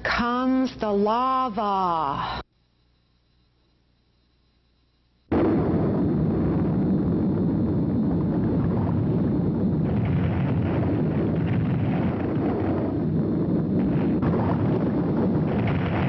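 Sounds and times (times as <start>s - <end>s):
deep rumble: 5.3s - 16.0s
explosive blast: 5.3s - 16.0s.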